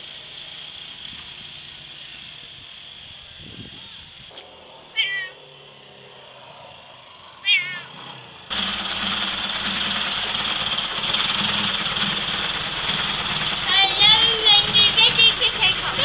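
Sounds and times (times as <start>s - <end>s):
cat meowing: 4.9s - 5.4s, 7.4s - 7.9s.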